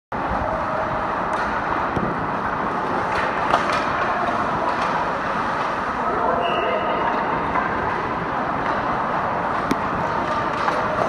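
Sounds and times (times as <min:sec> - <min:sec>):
hockey sticks clacking pucks: 0:01.2 - 0:05.8, 0:07.2 - 0:11.0
skates on ice: 0:01.2 - 0:06.0, 0:07.1 - 0:11.0.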